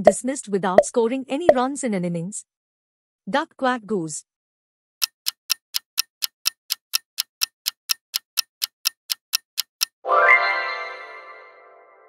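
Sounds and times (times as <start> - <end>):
clock ticking: 5.0 - 10.0.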